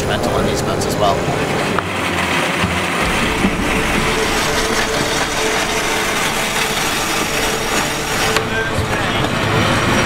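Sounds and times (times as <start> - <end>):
water rushing along hull: 0.0 - 10.0
wind on microphone: 2.7 - 10.0.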